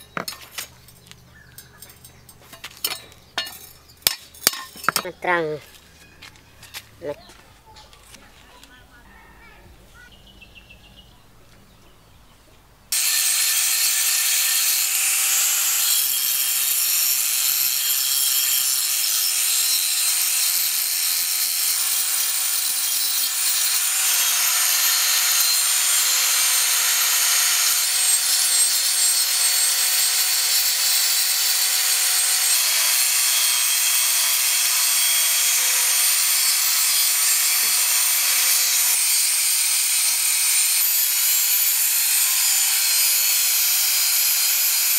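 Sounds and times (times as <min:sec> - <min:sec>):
angle grinder grinding metal: 0:12.9 - 0:44.9.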